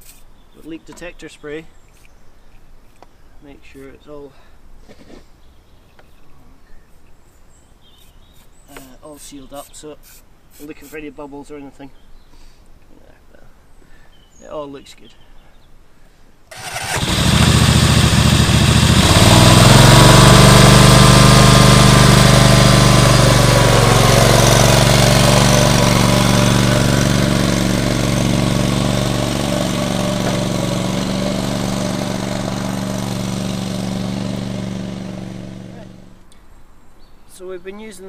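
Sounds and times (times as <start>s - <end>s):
mower engine starting and running: 16.5s - 36.2s.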